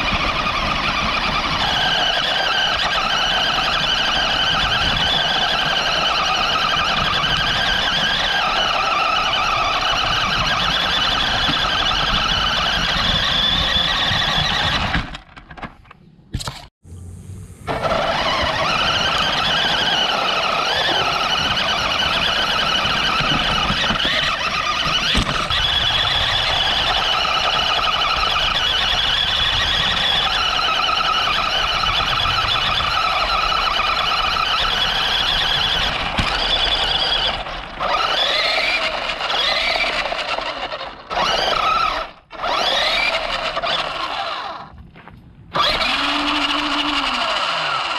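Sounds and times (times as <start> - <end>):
rc car motor whining: 0.0 - 15.3, 16.9 - 44.7, 45.6 - 47.9
tyres crunching on gravel: 44.4 - 45.8.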